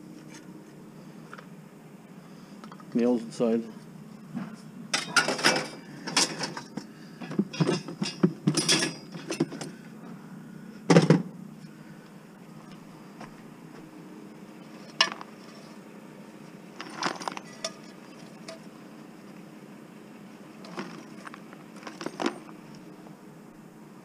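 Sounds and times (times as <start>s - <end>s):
low steady hum: 0.0s - 24.0s
scrap metal clinking: 7.5s - 9.7s, 16.8s - 18.7s, 20.6s - 22.6s.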